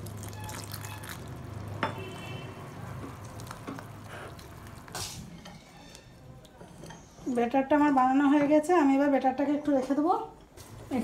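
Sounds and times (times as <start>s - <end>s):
wet batter stirring: 0.0s - 6.7s.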